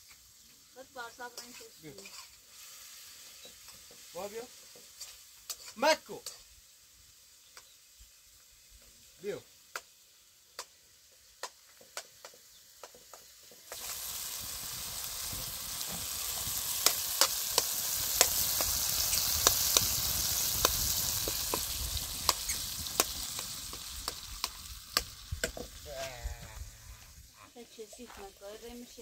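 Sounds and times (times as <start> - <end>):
tomatoes sizzling in oil: 0.0 - 29.0
spoon stirring in a pan: 1.3 - 6.4.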